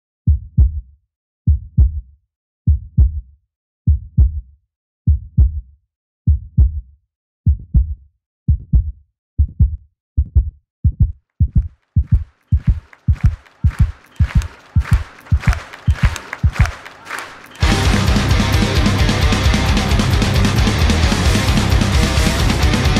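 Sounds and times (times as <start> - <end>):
heartbeat thumps: 8.5 - 16.7.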